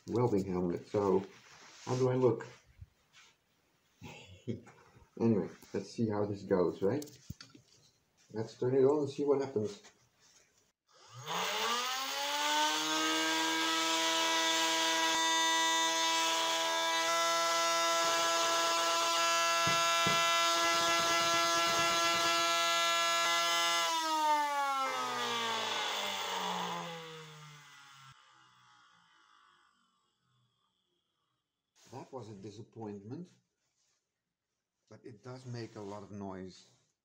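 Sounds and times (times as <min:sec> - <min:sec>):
electric motor whining: 0:11.0 - 0:29.3.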